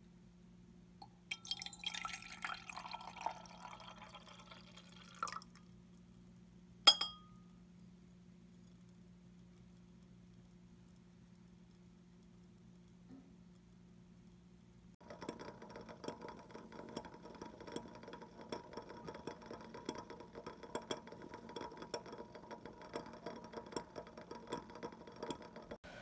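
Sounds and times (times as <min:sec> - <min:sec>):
low steady hum: 0:00.0 - 0:26.0
bubbles popping in boiling liquid: 0:01.3 - 0:05.6, 0:15.0 - 0:25.8.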